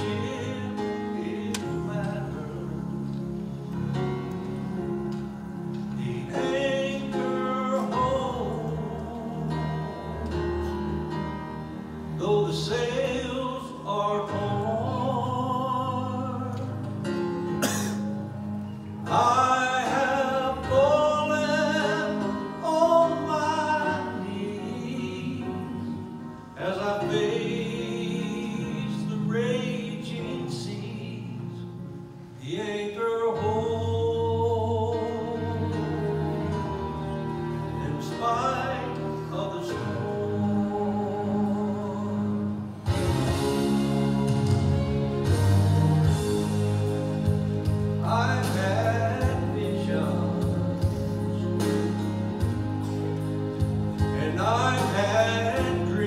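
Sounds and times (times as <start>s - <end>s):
man singing into a microphone: 0.0s - 3.4s, 5.9s - 10.9s, 12.2s - 17.3s, 19.1s - 36.2s, 37.8s - 42.8s, 48.0s - 52.1s, 54.0s - 56.0s
instrumental accompaniment: 0.0s - 56.0s.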